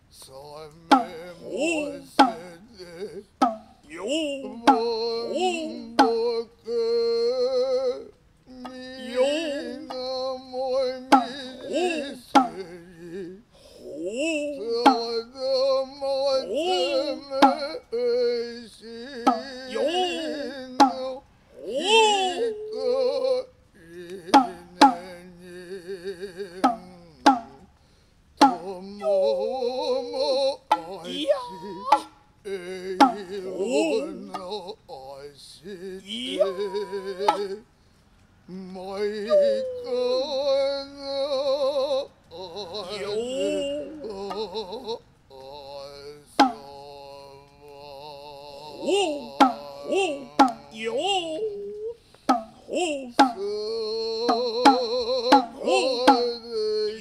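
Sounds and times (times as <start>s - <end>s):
man chanting: 0.0s - 27.8s, 28.4s - 37.7s, 38.4s - 57.0s
shoulder drum strikes: 0.9s - 1.3s, 2.2s - 2.6s, 3.4s - 6.3s, 11.1s - 11.5s, 12.3s - 12.8s, 16.8s - 17.7s, 19.2s - 19.6s, 20.8s - 21.2s, 24.3s - 25.2s, 26.6s - 27.7s, 28.4s - 28.8s, 33.0s - 34.5s, 46.4s - 46.7s, 49.2s - 50.9s, 52.3s - 52.6s, 53.2s - 53.4s, 54.2s - 56.3s.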